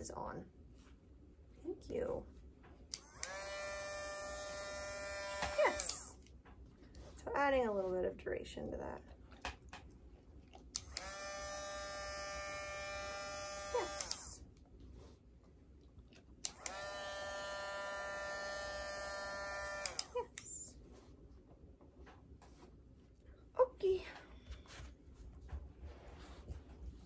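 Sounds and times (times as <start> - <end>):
rotary tool whining: 2.9 - 6.2, 10.8 - 14.4, 16.4 - 20.4.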